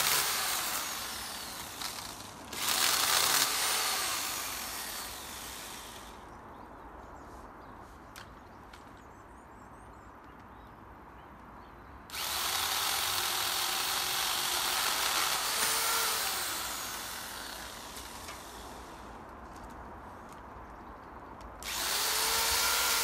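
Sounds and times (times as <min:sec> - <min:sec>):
electric pole saw cutting branch: 0:00.0 - 0:06.2, 0:12.1 - 0:19.2, 0:21.6 - 0:23.0.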